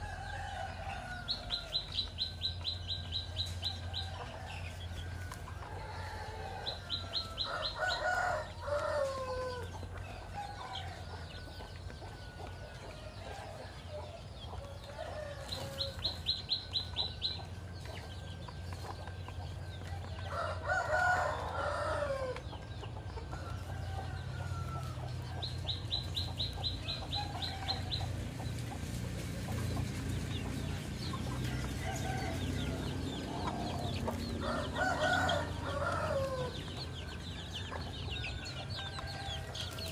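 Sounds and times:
rooster crowing: 0:00.0 - 0:02.0, 0:03.9 - 0:09.7, 0:20.1 - 0:22.4, 0:23.3 - 0:25.4, 0:31.4 - 0:39.9.

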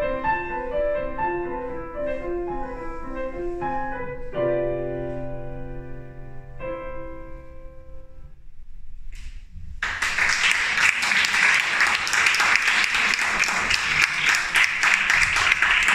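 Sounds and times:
piano chord ringing: 0:00.0 - 0:08.5
audience applause: 0:09.8 - 0:15.9.

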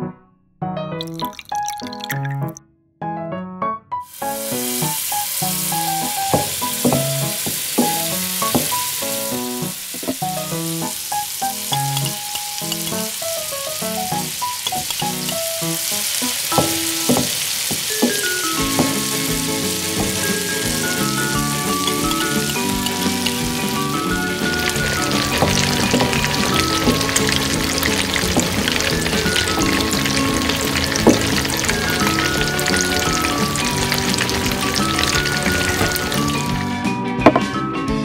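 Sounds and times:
food sizzling in hot oil: 0:04.1 - 0:36.8
light background music: 0:18.0 - 0:38.0.

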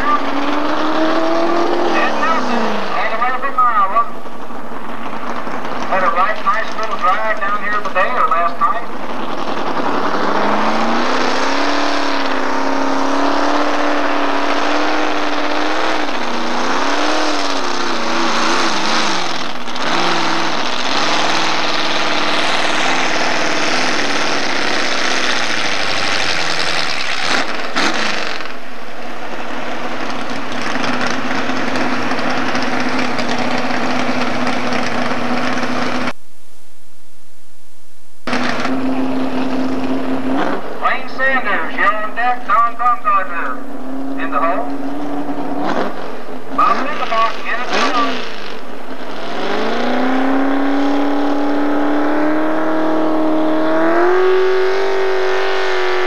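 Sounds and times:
truck engine running under load: 0:11.6 - 0:36.1.

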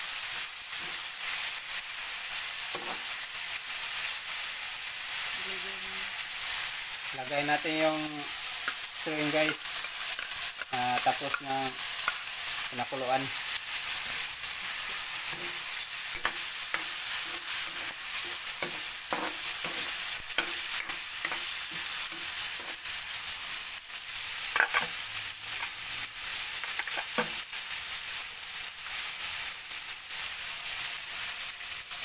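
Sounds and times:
meat sizzling in wok: 0:00.0 - 0:32.0
metal spatula scraping pan: 0:14.0 - 0:22.8.

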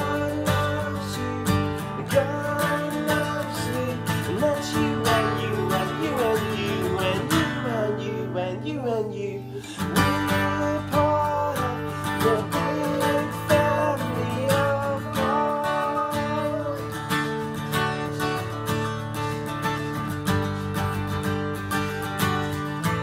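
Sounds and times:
man and boy singing: 0:00.0 - 0:16.9
acoustic guitar strumming: 0:00.0 - 0:23.0.

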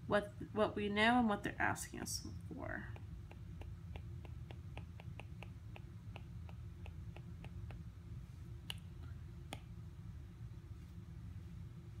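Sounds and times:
stylus tapping on glass screen: 0:02.8 - 0:07.8.

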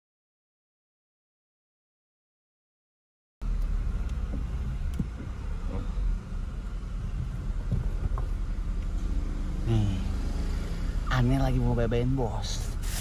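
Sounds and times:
car engine and road rumble: 0:03.4 - 0:13.0.

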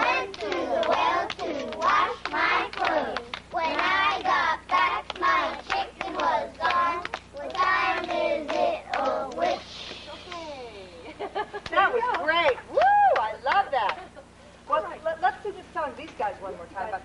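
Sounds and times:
children singing: 0:00.0 - 0:04.5
children clapping hands: 0:00.0 - 0:09.6.

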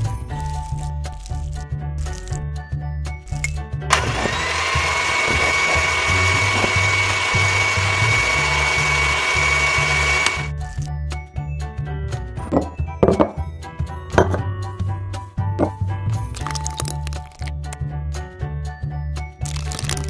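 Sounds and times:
electric hand mixer whining: 0:03.9 - 0:10.5
background music with beat: 0:10.5 - 0:16.4.

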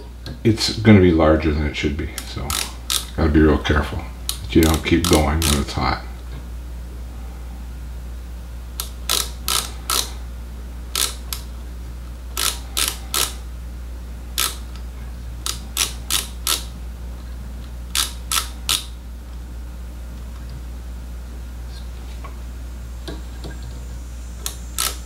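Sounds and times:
steady low hum: 0:00.0 - 0:25.0
micrometer ratchet clicking: 0:02.1 - 0:03.2, 0:04.3 - 0:05.8, 0:08.8 - 0:10.2, 0:10.9 - 0:11.5, 0:12.3 - 0:13.4, 0:14.4 - 0:14.8, 0:15.4 - 0:16.8, 0:17.9 - 0:19.0, 0:24.4 - 0:25.0.

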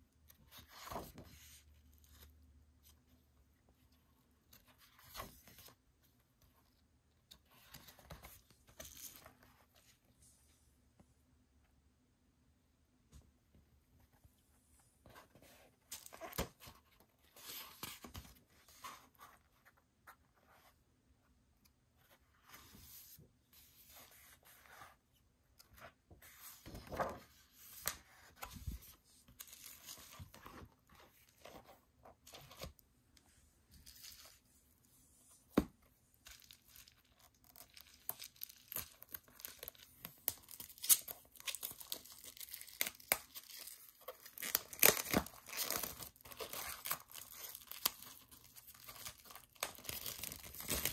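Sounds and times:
plastic wrapping tearing: 0:40.5 - 0:48.0.

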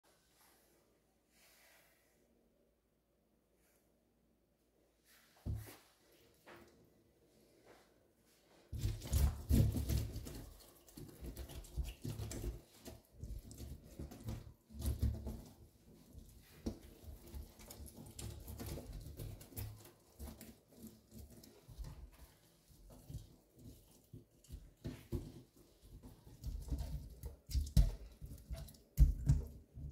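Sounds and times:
hand rubbing wet steel sink: 0:08.8 - 0:29.9.

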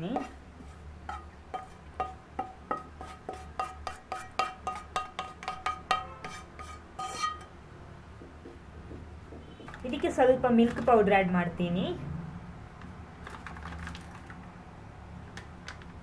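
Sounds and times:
wooden spatula knocking on metal: 0:01.1 - 0:07.5.

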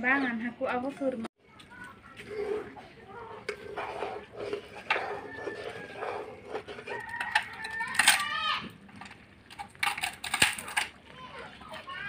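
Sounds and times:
rooster crowing: 0:04.9 - 0:08.6.

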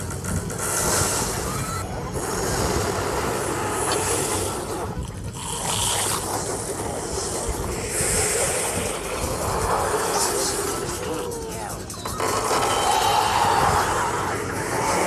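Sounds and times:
dense din of cartoon soundtracks: 0:00.0 - 0:15.0.

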